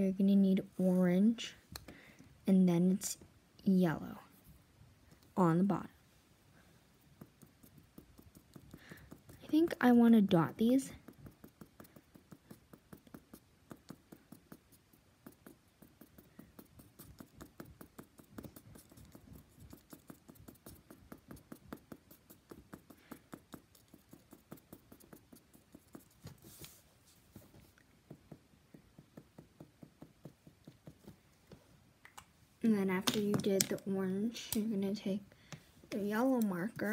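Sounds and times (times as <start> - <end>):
marker tapping on paper: 7.1 - 26.7, 28.0 - 31.2, 32.9 - 33.9.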